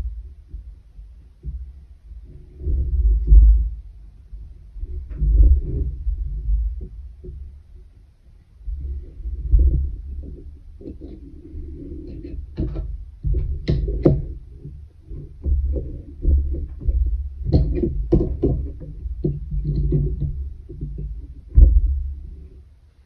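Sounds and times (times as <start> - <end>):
low thumps of loom frame: 0.0 - 8.0, 8.6 - 22.7
sharp knocks: 9.6 - 22.4.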